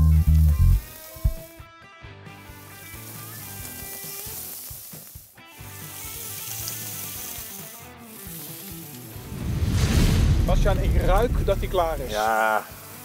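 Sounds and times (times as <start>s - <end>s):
skewers sizzling on grill: 0.0s - 1.6s, 2.3s - 13.0s
background music: 5.4s - 13.0s.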